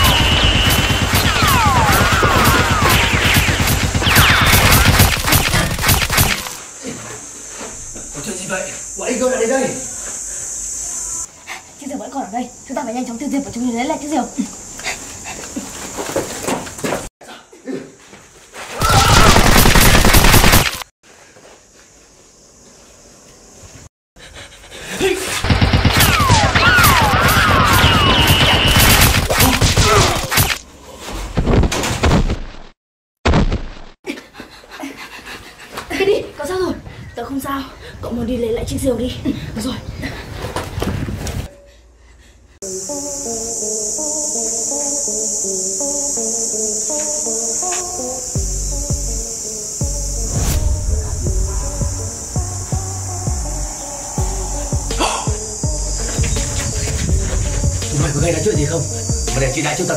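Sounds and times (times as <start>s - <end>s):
swooping whistles falling in pitch: 0.0s - 4.9s, 26.1s - 29.0s, 51.6s - 56.9s
rapid gunfire: 0.0s - 6.6s, 18.9s - 20.8s, 25.4s - 30.6s
whizzing ricochet tones: 0.0s - 6.6s, 25.3s - 30.6s
thuds: 31.2s - 34.0s.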